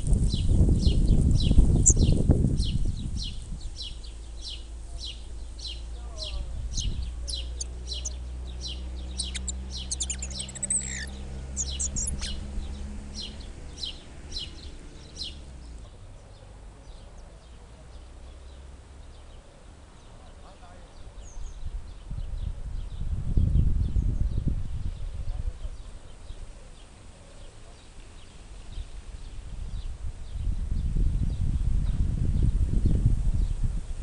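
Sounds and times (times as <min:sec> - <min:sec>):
flycatchers calling: 0:00.8 - 0:15.4.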